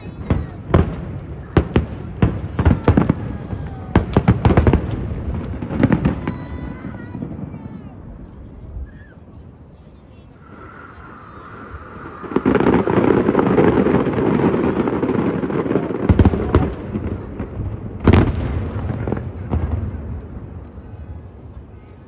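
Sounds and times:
fireworks bangs: 0.0s - 22.0s
fireworks crackling: 0.0s - 22.0s.

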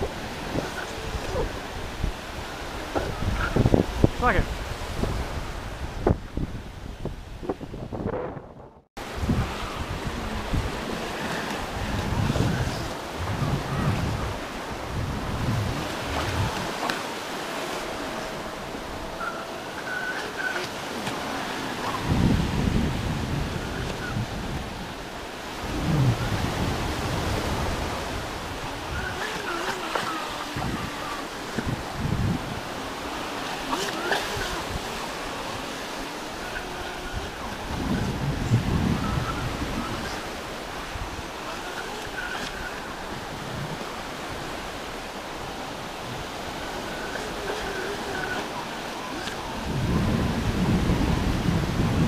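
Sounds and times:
surf washing over beach: 0.0s - 52.0s
wind buffeting microphone: 0.0s - 52.0s
faint wavering whine: 16.2s - 22.2s.

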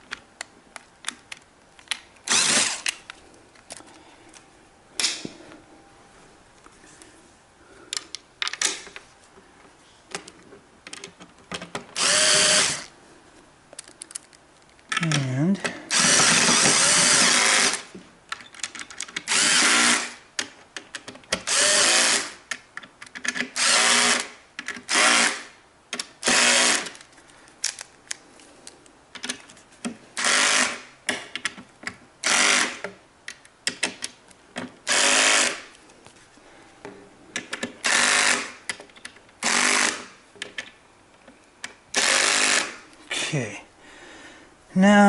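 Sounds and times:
cordless drill driving screws: 2.3s - 3.0s, 12.0s - 12.9s, 15.9s - 17.9s, 19.3s - 20.2s, 21.4s - 22.4s, 23.6s - 24.3s, 24.9s - 25.5s, 26.2s - 26.9s, 30.2s - 30.9s, 32.2s - 32.8s, 34.9s - 35.7s, 37.8s - 38.6s, 39.4s - 40.1s, 41.9s - 42.8s.

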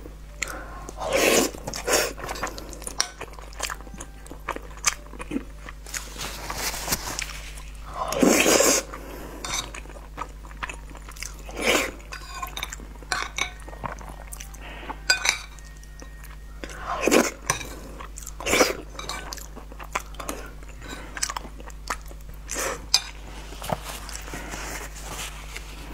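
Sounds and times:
chewing and mouth clicks: 18.0s - 22.8s.

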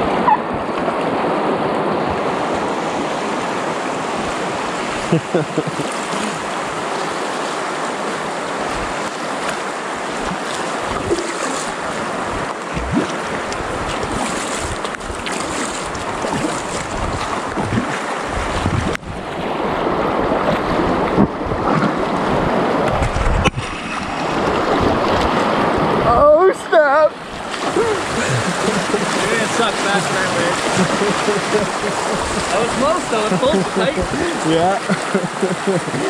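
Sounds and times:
river water rushing: 0.0s - 36.0s
wind buffeting microphone: 10.1s - 26.2s.

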